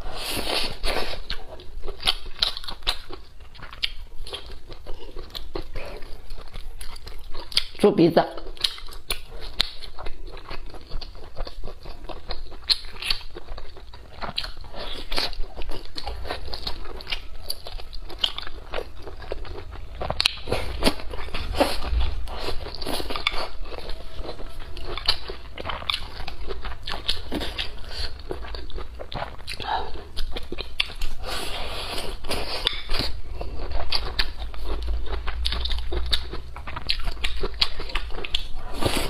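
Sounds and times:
person chewing and biting food: 0.0s - 7.8s, 8.4s - 39.0s.

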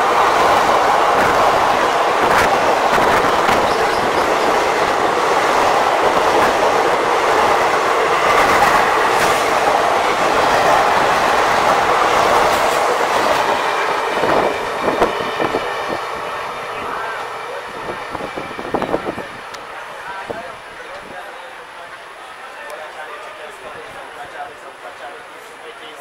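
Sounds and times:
train wheels clacking on rails: 0.0s - 19.7s.

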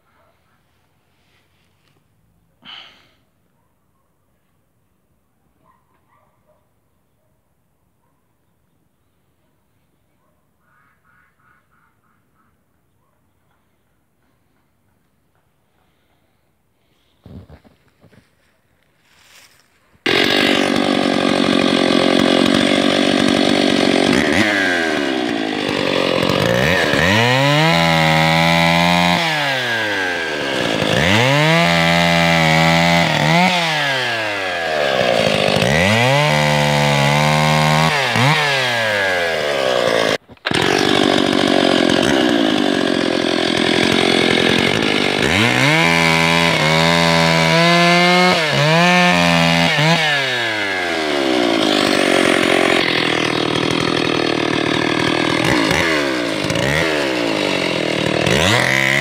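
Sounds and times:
chainsaw cutting logs: 2.6s - 3.2s, 17.2s - 59.0s.

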